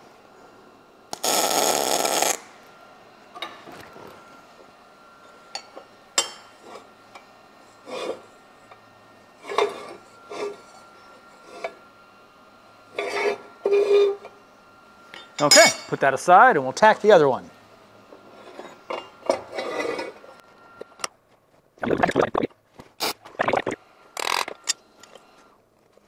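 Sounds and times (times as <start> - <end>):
welding arc: 1.1 - 2.5.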